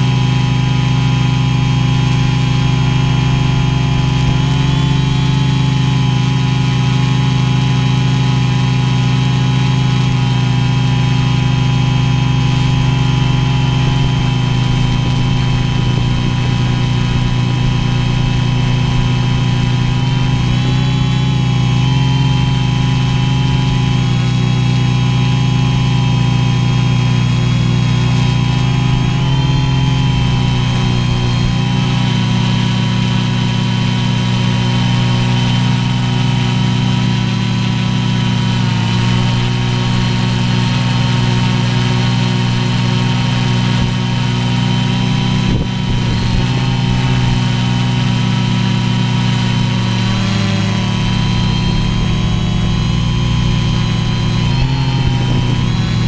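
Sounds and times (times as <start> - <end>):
quadcopter motors humming: 0.0 - 56.0.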